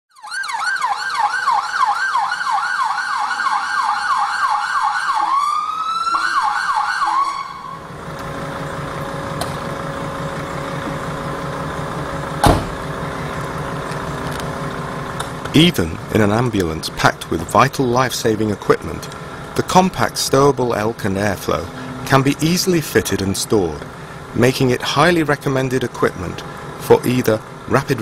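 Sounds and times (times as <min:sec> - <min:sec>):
ambulance siren yelping: 0:00.1 - 0:16.2
vehicle engine running: 0:07.5 - 0:28.0
loud thump: 0:12.4 - 0:12.8.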